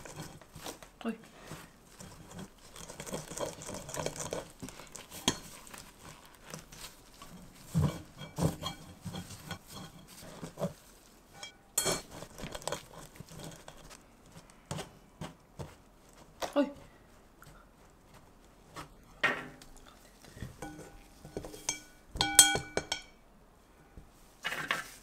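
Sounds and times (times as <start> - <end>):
flour rustling through wire sieve: 0.0 - 19.2, 20.0 - 22.2, 24.2 - 25.0
wooden spoon scraping mesh: 0.0 - 19.2, 20.0 - 23.2
metal sieve knocking on glass: 21.7 - 23.1.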